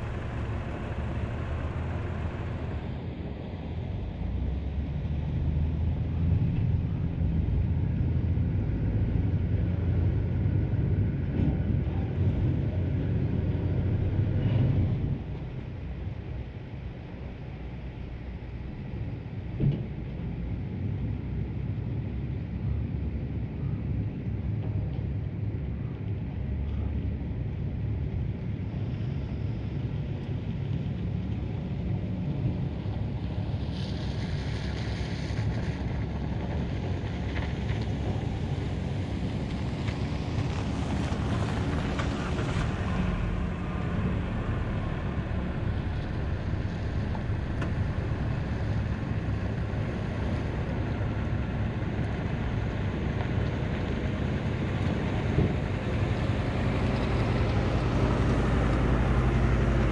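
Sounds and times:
pickup truck driving up: 0.0s - 4.0s, 37.1s - 59.9s
low engine rumble: 0.0s - 59.9s.

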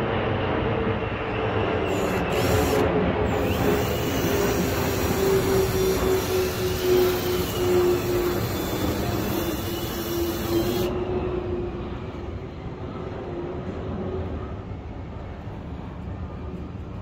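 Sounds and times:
steady rushing noise: 0.0s - 17.0s
cordless drill whining: 1.8s - 11.0s.

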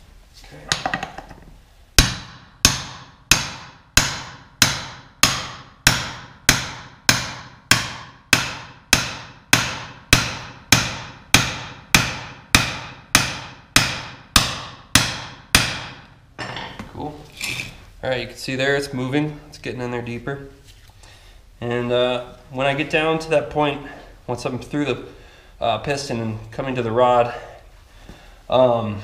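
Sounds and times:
hammer striking metal punch: 2.0s - 16.8s.

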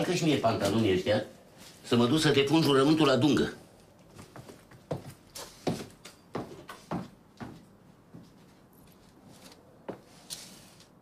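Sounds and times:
footsteps on room floor: 3.8s - 10.9s.

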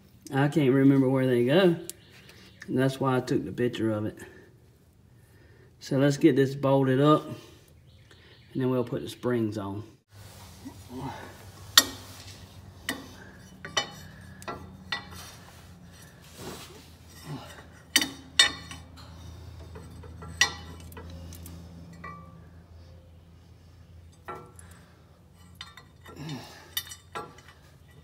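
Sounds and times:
low hum: 10.2s - 27.7s.

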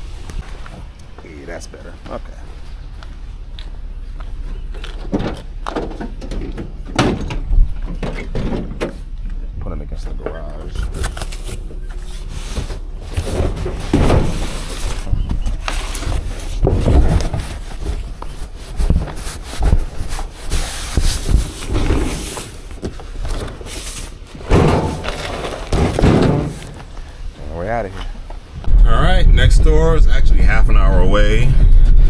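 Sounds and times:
cardboard boxes scraping: 10.8s - 27.0s
boxes knocking: 24.4s - 26.8s.

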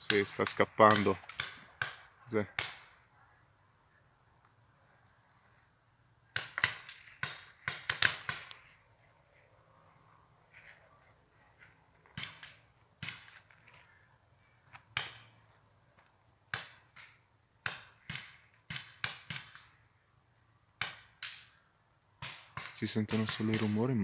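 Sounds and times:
paintball markers firing: 0.0s - 3.0s, 6.3s - 8.7s, 12.1s - 13.5s, 16.5s - 19.9s, 20.8s - 21.6s, 22.2s - 24.0s.

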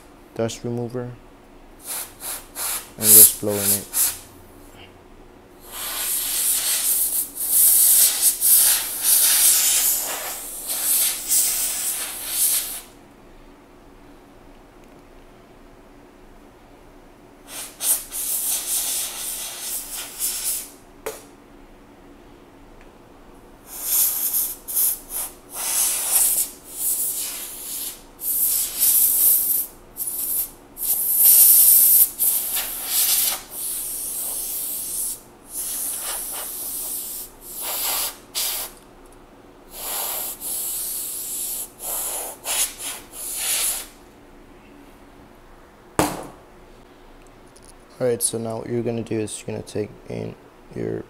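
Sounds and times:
compressed air hissing blasts: 1.8s - 4.3s, 5.6s - 13.0s, 17.4s - 20.8s, 23.6s - 38.8s, 39.7s - 44.0s.

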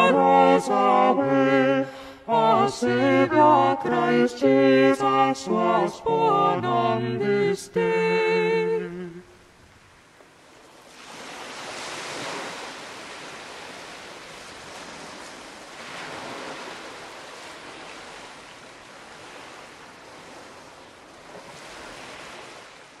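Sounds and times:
surf-like rushing noise: 10.8s - 23.0s.

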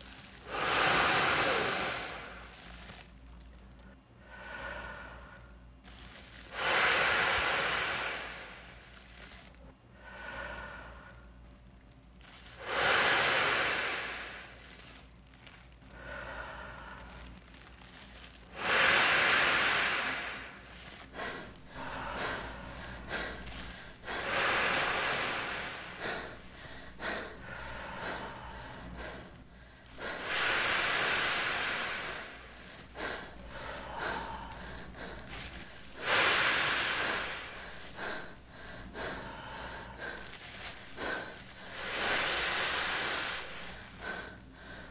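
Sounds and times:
man blowing into plastic bag: 0.0s - 3.1s, 12.3s - 15.5s, 17.2s - 44.5s
plastic bag crinkling: 0.0s - 3.8s, 5.8s - 6.7s, 7.8s - 9.6s, 11.3s - 12.7s, 14.0s - 16.0s, 16.7s - 18.7s, 20.1s - 30.8s, 31.8s - 42.7s, 43.3s - 44.4s.

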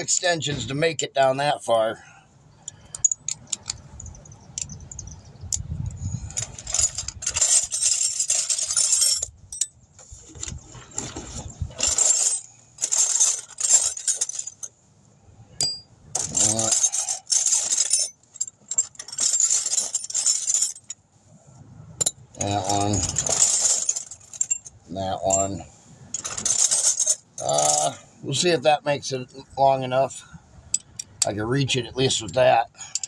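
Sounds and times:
steel sockets clinking: 2.6s - 14.7s, 15.5s - 21.0s, 22.0s - 27.9s, 30.7s - 31.4s, 32.0s - 33.0s.

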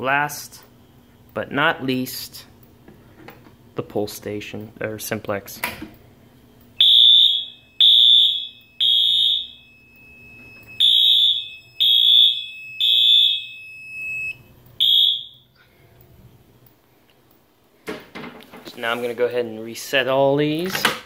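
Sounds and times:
steady high buzzer beep: 6.8s - 15.5s
fire alarm horn blasts: 6.8s - 15.6s.

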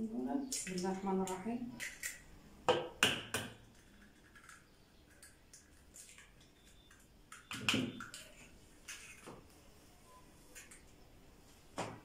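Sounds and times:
eggs cracking on bowl rim: 0.5s - 9.3s.

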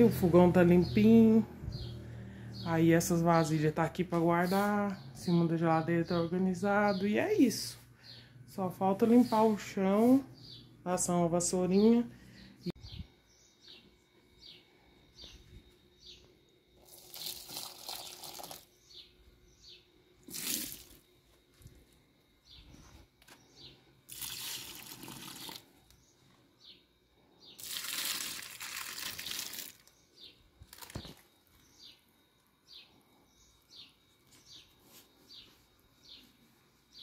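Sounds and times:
birds chirping: 0.0s - 16.5s, 29.0s - 37.0s
water splashing into soil: 16.9s - 18.7s, 20.2s - 21.0s, 24.1s - 25.6s, 27.6s - 29.9s.

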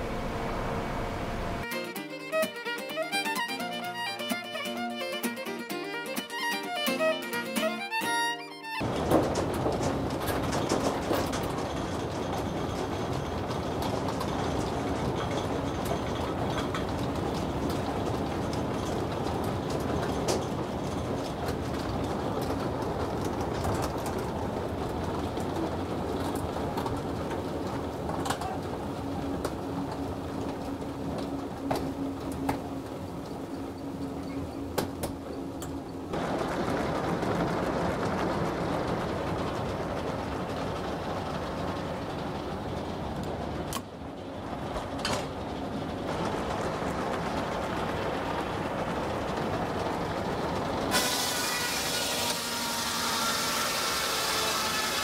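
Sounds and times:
log haul mechanical rumble: 0.0s - 1.7s, 8.8s - 51.8s
sawmill machinery running: 0.0s - 55.0s
chain and wood clanking: 8.8s - 24.3s.

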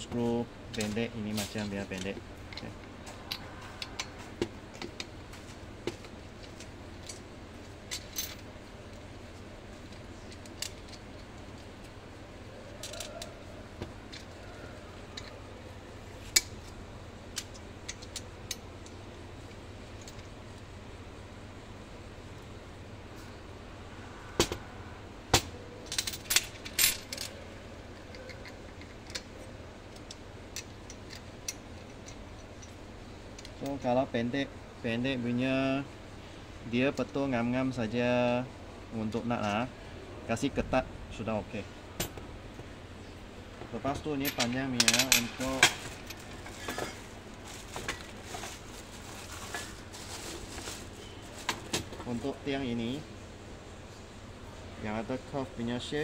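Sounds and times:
metal hardware clinking: 43.8s - 47.0s.

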